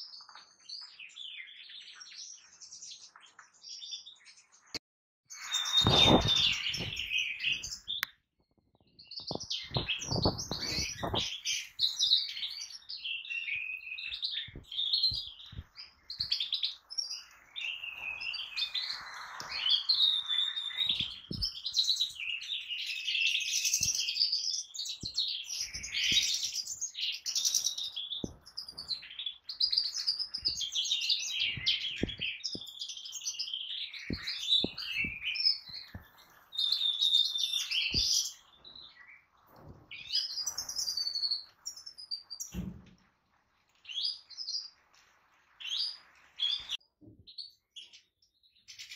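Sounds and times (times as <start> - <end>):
finches twittering: 5.4 - 7.9, 9.3 - 12.8, 24.9 - 38.4.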